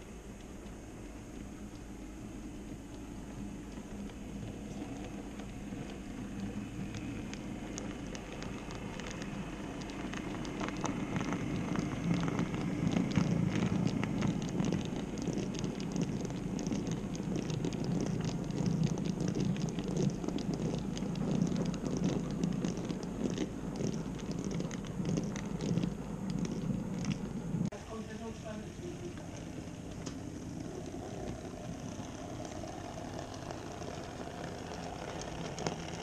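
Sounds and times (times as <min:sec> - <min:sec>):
light rapid clicking: 0:02.6 - 0:27.4.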